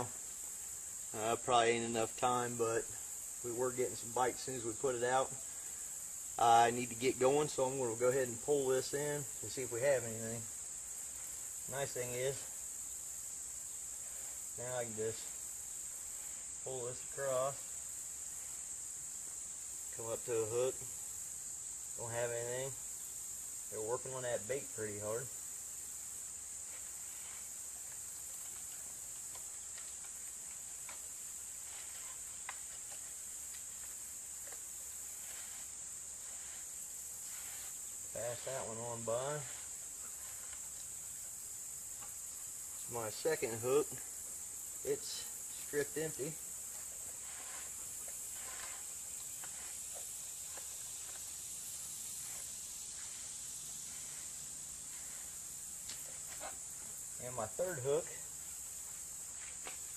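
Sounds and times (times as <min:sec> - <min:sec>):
insects droning: 0:00.0 - 0:59.9
line pulled by hand rustling: 0:26.7 - 0:40.9, 0:45.0 - 0:51.3.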